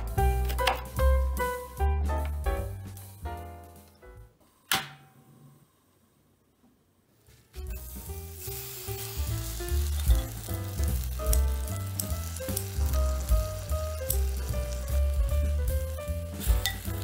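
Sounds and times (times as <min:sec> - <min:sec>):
background music with bass line: 0:00.0 - 0:03.7, 0:07.6 - 0:17.0
meat sizzling in a hot pot: 0:07.8 - 0:17.0.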